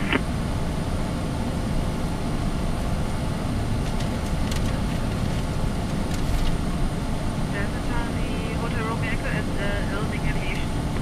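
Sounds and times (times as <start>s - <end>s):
jet engines humming: 0.0s - 11.0s.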